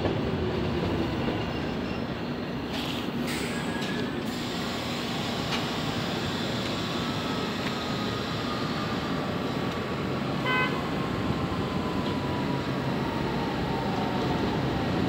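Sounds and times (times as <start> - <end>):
subway train rumble and whine: 0.0 - 15.0
train horn toot: 10.4 - 10.9.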